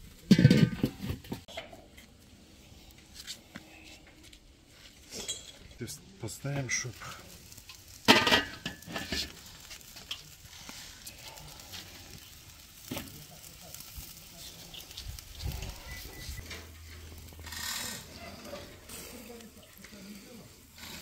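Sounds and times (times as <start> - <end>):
steaks sizzling on grill: 4.8 - 21.0.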